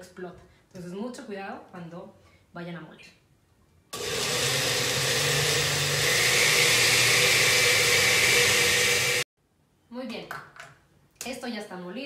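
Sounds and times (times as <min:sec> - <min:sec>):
blender motor running: 0:04.0 - 0:09.3.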